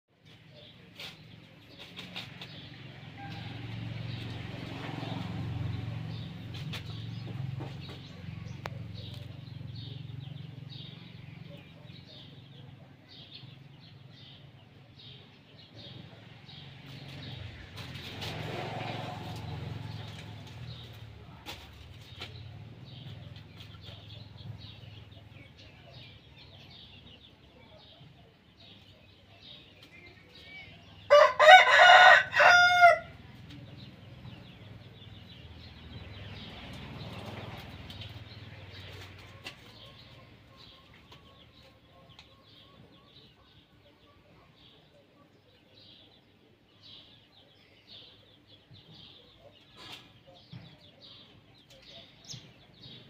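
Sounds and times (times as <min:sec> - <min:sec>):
birds chirping: 0:00.1 - 0:53.0.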